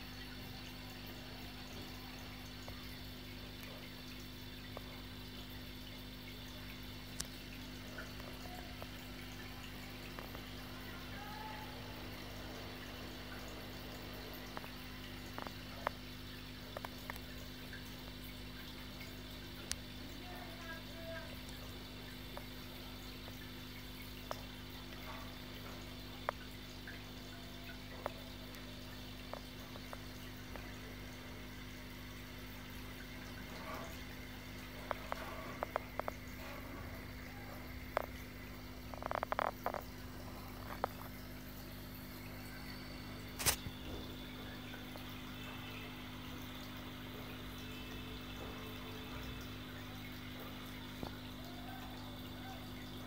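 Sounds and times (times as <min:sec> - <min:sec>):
aquarium equipment hum: 0:00.0 - 0:53.0
sharp drip-like plinks: 0:00.0 - 0:53.0
water trickling: 0:00.0 - 0:53.0
sharp click: 0:43.4 - 0:43.7.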